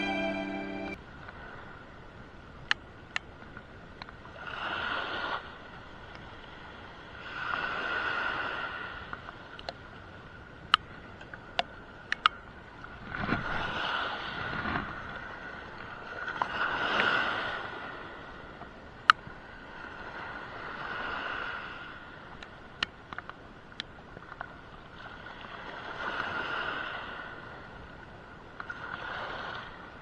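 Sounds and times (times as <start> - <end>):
wind on microphone: 12.9 - 18.4.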